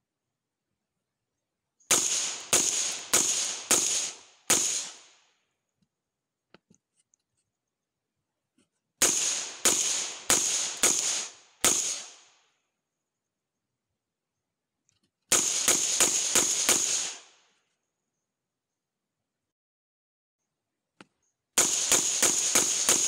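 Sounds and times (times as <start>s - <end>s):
suppressed rifle shots: 1.9s - 5.2s, 9.0s - 12.3s, 15.3s - 17.3s, 21.6s - 23.0s.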